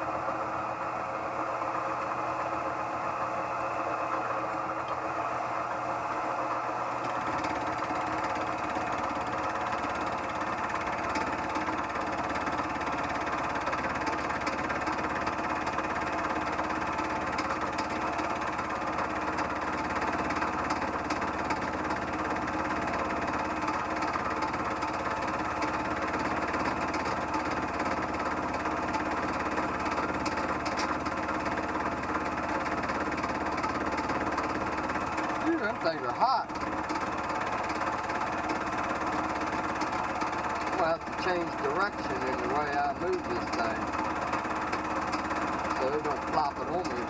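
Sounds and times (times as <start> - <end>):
mill-drill-lathe running: 0.0 - 47.0
fly cutter cutting metal: 33.0 - 47.0.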